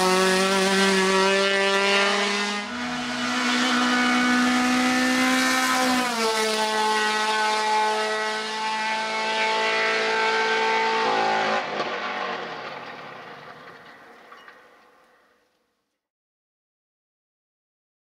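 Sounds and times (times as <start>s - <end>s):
race car engine revving high: 0.0s - 12.6s.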